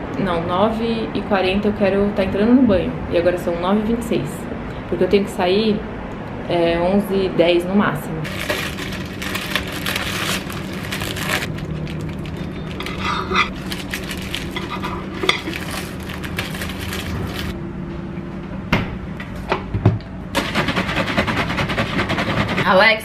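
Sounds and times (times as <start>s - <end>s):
plastic bag rustling: 8.2s - 17.6s.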